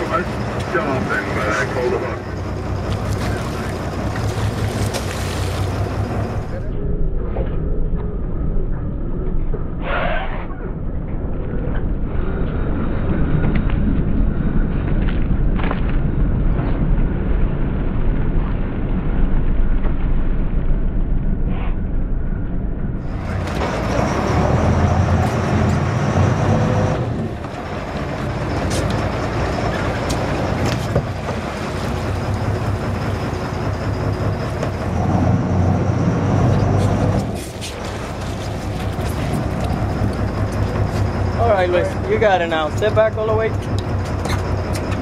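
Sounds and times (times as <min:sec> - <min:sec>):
boat engines humming: 0:00.0 - 0:07.2, 0:23.0 - 0:45.0.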